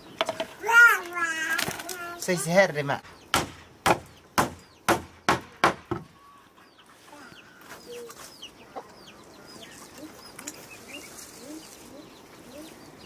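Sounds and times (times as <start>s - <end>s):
sharp knocks on wood: 3.3s - 6.1s
faint bird chirps: 6.1s - 13.0s.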